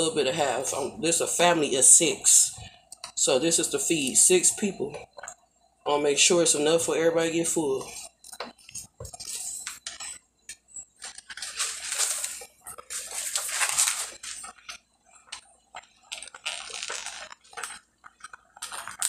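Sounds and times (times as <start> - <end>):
boiling water: 0.0 - 19.0
spaghetti rustling: 10.8 - 19.0.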